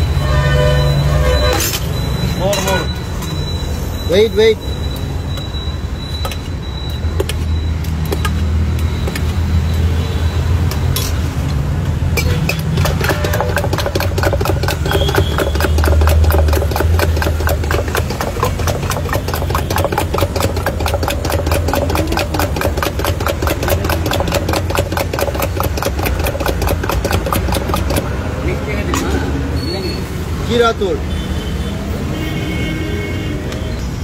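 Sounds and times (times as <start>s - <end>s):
tool rattling in steel tumbler: 12.2s - 28.1s.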